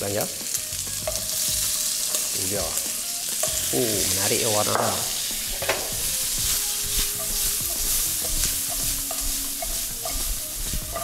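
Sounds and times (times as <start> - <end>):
food sizzling in oil: 0.0 - 11.0
wok being shaken: 5.6 - 11.0.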